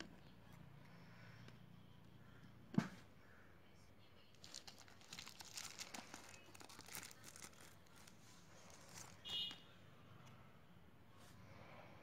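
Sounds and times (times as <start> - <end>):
crinkling and tearing handling noise: 4.3 - 9.6.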